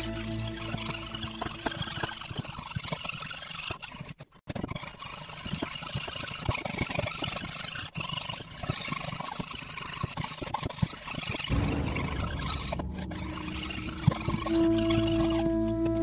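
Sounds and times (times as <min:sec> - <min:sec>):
fretsaw rasping strokes: 0:00.0 - 0:02.7, 0:11.5 - 0:16.0.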